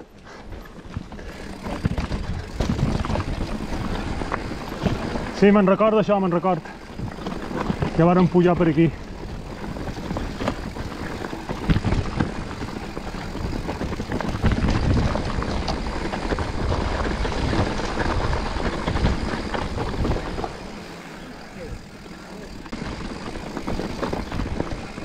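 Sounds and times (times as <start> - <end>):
bike rattling over rocky trail: 0.0 - 25.0
wind buffeting microphone: 0.9 - 20.9.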